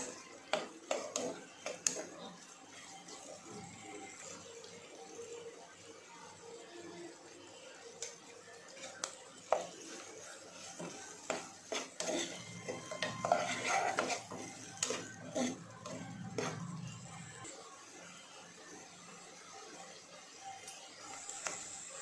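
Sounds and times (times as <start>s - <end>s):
metal spoon scraping pan: 0.0s - 2.4s, 10.6s - 17.0s.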